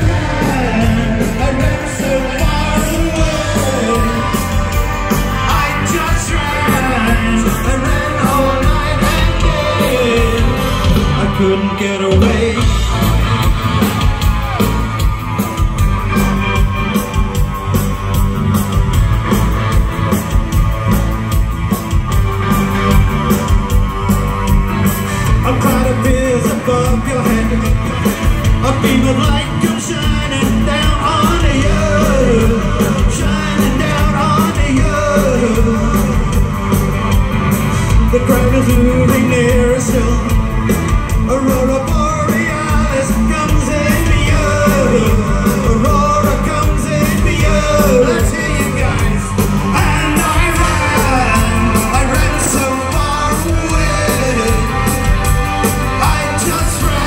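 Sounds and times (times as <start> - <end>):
man singing: 0.0 - 13.2, 25.2 - 36.8, 37.9 - 57.0
drums: 0.0 - 57.0
electric guitar: 0.0 - 57.0.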